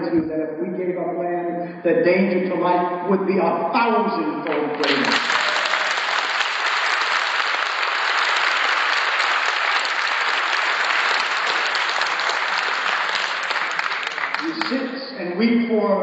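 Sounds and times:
audience applauding: 4.7s - 14.9s.

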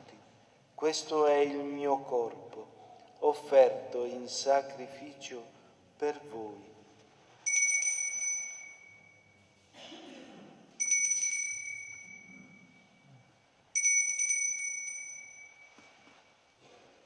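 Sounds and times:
altar bell ringing: 7.4s - 9.7s, 10.7s - 16.3s.

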